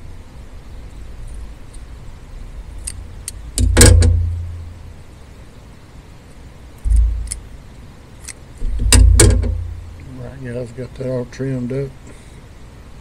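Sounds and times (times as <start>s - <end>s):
dull thump: 3.6s - 4.5s, 6.8s - 7.4s, 8.6s - 9.9s.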